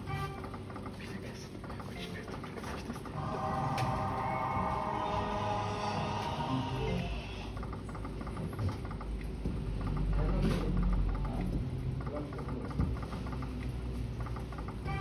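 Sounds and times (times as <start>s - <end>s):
slot machine reels ticking: 0.0s - 15.0s
low hum: 3.0s - 8.7s.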